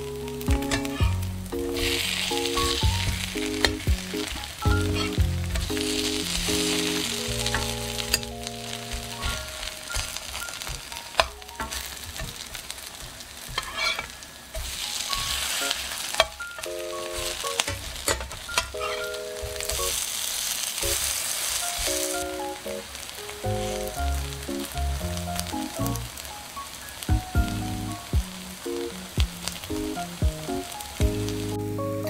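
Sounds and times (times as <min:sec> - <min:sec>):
light background music: 0:00.0 - 0:12.0, 0:21.6 - 0:32.0
pancakes sizzling in oil: 0:00.1 - 0:31.5.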